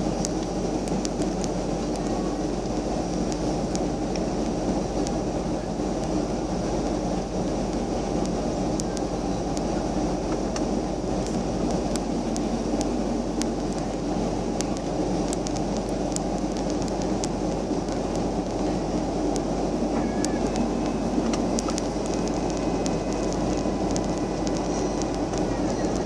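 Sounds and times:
jet engines roaring in cabin: 0.0 - 26.0
rushing air: 0.0 - 26.0.

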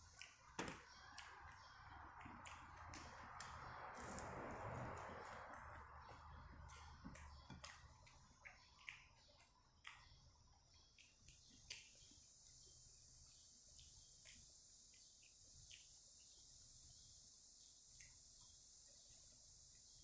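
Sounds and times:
person chewing and eating: 0.0 - 12.7, 13.3 - 16.2.

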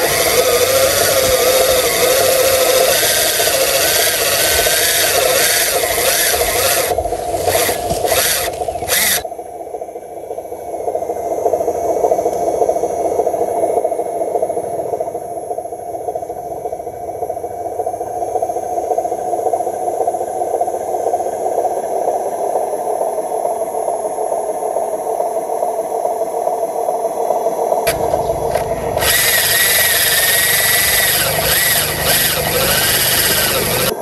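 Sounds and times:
toy truck motor whirring: 0.0 - 9.2, 27.9 - 34.0
hissing with wavering whine: 0.0 - 15.9, 27.6 - 34.0.

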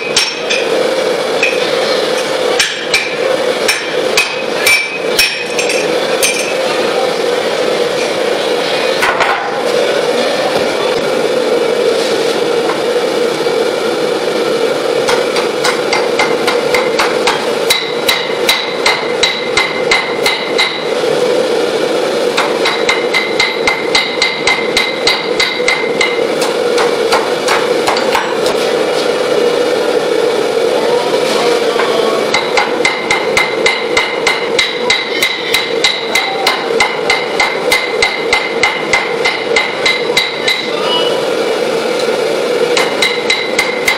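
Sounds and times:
hammer striking anvil: 0.0 - 0.7, 1.4 - 6.6, 15.1 - 20.9, 22.4 - 28.4, 32.3 - 40.7, 42.8 - 43.9.

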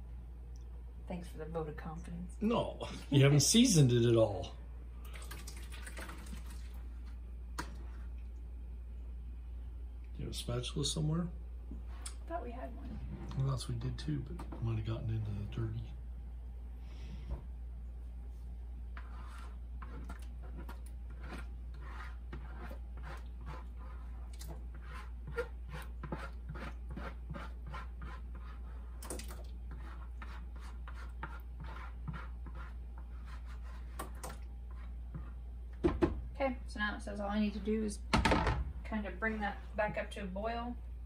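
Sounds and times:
steady low hum: 0.0 - 41.0
spatula scraping plastic bowl: 18.9 - 29.0.

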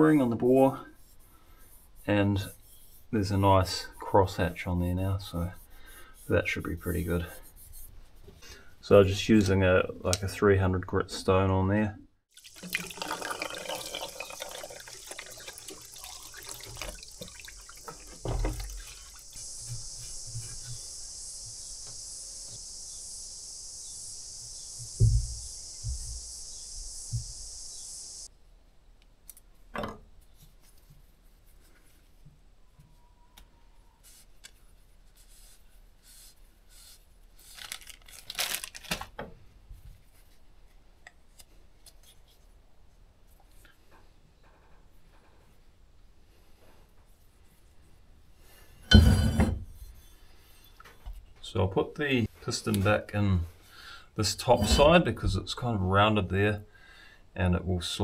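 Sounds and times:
liquid hissing over metal: 12.4 - 23.0.

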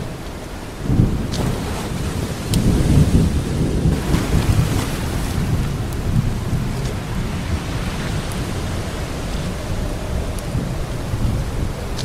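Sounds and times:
deep rumble: 0.0 - 12.0
rushing water: 0.0 - 12.0
faint drip-like ticks: 9.3 - 12.0.

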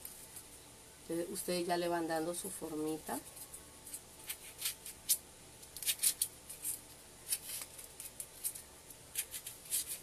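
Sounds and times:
craft knife scraping foam: 9.1 - 10.0.

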